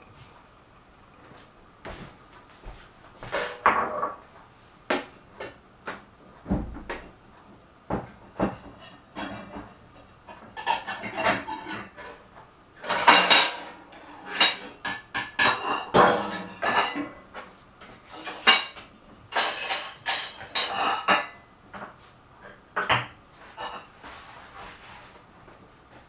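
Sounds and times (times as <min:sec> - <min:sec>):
dishes and cutlery clattering: 0:03.2 - 0:04.2, 0:08.4 - 0:12.2, 0:12.8 - 0:22.0, 0:22.8 - 0:24.0.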